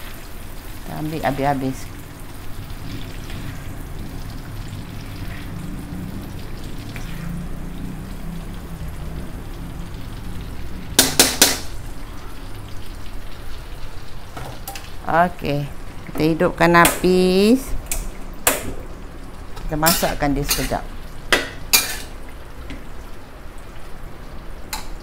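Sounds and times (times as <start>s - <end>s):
hot oil frying and bubbling: 0.0s - 25.0s
strainer knocking on a wok: 11.0s - 11.7s.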